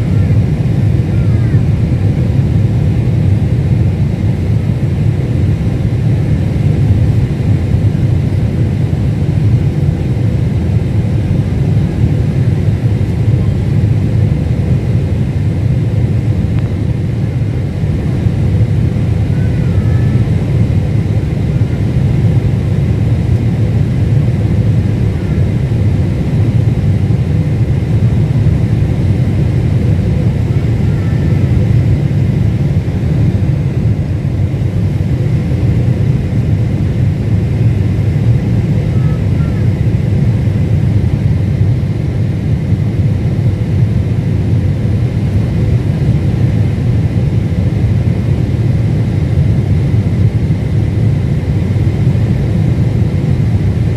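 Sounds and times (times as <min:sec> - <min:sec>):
airliner cabin engine rumble: 0:00.0 - 0:53.9
faint steady hum: 0:00.0 - 0:53.9.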